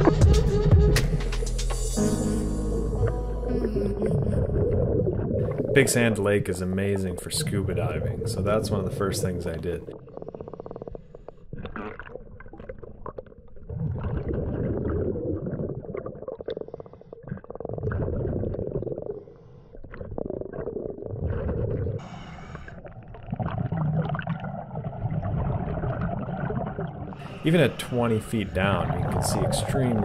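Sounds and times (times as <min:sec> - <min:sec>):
exhaled bubbles underwater: 0:02.7 - 0:30.0
regulator inhale hiss: 0:22.0 - 0:22.8.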